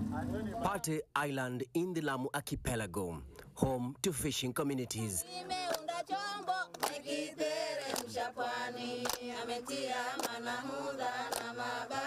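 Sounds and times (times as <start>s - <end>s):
women singing a chant: 5.2s - 12.0s.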